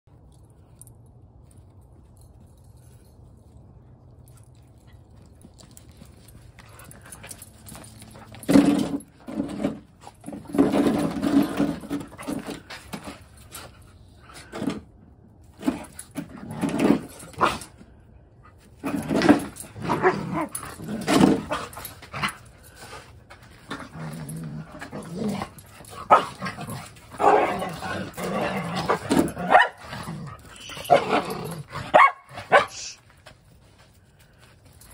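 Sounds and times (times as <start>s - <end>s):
dogs growling and barking: 15.6s - 17.8s, 18.7s - 32.8s.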